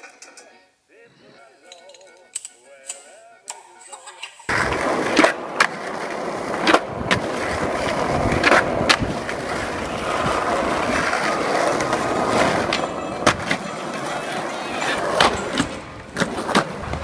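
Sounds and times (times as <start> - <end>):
skateboard clacks: 4.5 - 17.0
skateboard wheels rolling on stone: 4.5 - 17.0.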